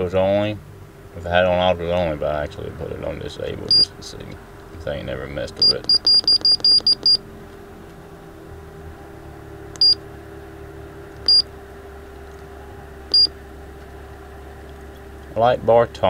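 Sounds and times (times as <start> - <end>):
steady low hum: 0.0 - 16.0
high-pitched key-press beeps: 3.7 - 3.9, 5.6 - 7.2, 9.8 - 10.0, 11.2 - 11.5, 13.1 - 13.3.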